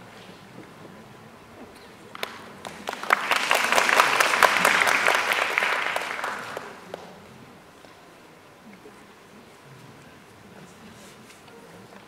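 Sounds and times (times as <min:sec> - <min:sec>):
audience applauding: 0:02.1 - 0:07.1.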